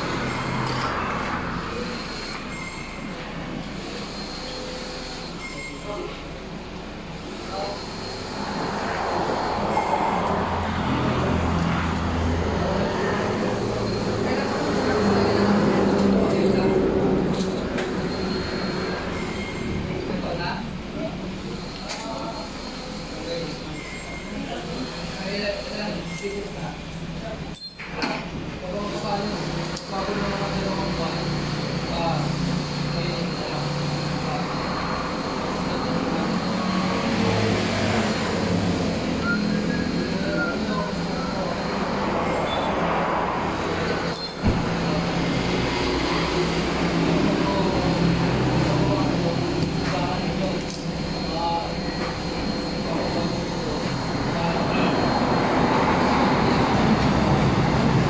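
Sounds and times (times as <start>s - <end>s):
vehicle engine humming: 0.0s - 5.5s, 6.1s - 26.0s, 28.4s - 58.0s
traffic rumble: 6.2s - 22.6s, 28.2s - 58.0s.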